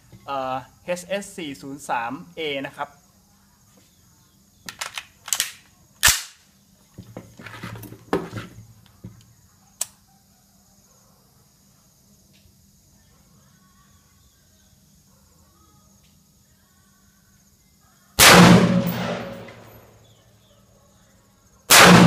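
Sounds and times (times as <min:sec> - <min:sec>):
gunshots: 0:18.2 - 0:19.8, 0:21.7 - 0:22.0.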